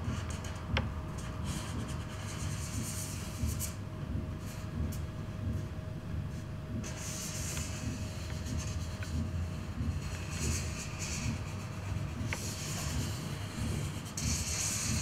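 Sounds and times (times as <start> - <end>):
faint steady hum: 0.0 - 15.0
low room rumble: 0.0 - 15.0
marker rubbing across paper: 6.8 - 9.3, 10.0 - 15.0.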